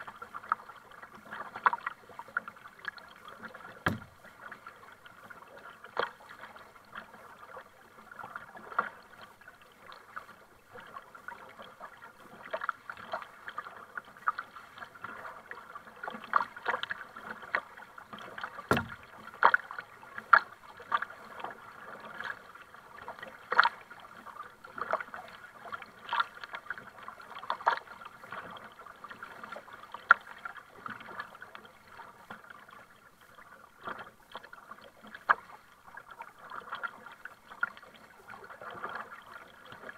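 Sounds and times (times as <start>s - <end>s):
paddle strokes: 0.0s - 39.9s
water splashing against kayak hull: 0.0s - 39.9s
sharp knock: 3.9s - 4.2s, 18.7s - 19.0s.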